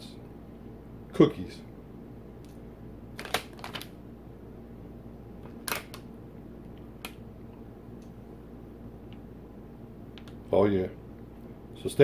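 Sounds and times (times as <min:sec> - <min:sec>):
plastic package crinkling: 0:03.2 - 0:03.9, 0:05.6 - 0:06.1.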